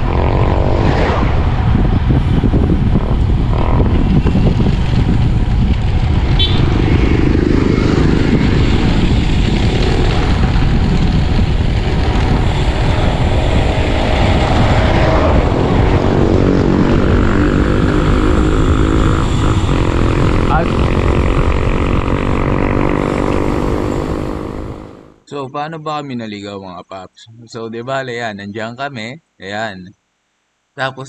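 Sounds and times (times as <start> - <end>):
wind buffeting microphone: 0.0 - 24.8.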